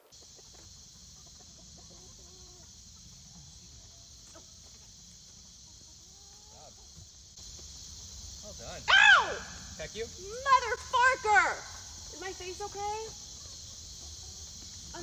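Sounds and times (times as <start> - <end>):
chickens clucking: 0.0 - 8.4, 11.7 - 15.0.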